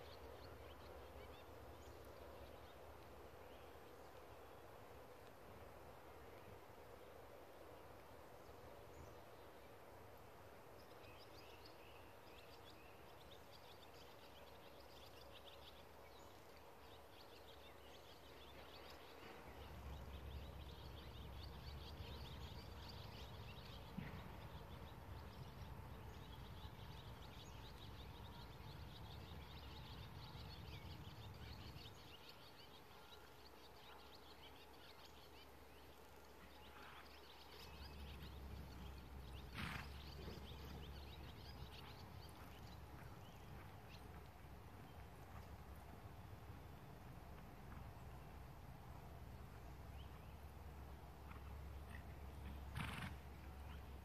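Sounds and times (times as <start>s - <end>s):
birds chirping and singing: 11.0s - 44.2s.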